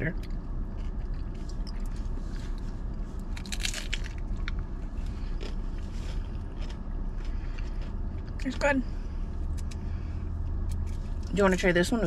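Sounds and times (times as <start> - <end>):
low car interior rumble: 0.0 - 12.0
crunching tostada shell: 0.2 - 8.4.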